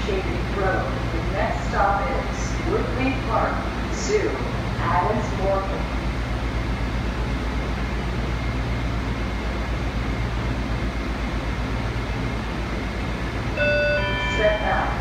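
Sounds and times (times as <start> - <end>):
subway car running noise: 0.0 - 15.0
faint high whine: 13.4 - 15.0.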